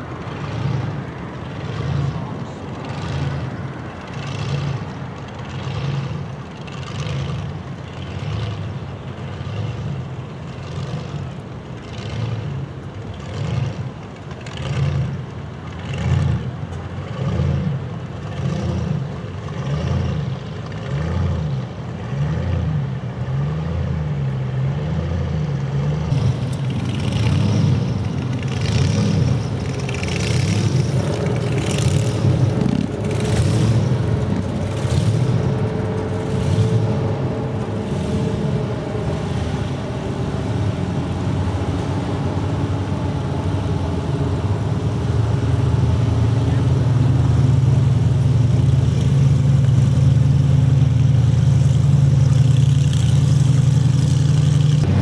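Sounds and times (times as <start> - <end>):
car engines rumbling past: 0.0 - 55.0
engine revs: 0.0 - 55.0.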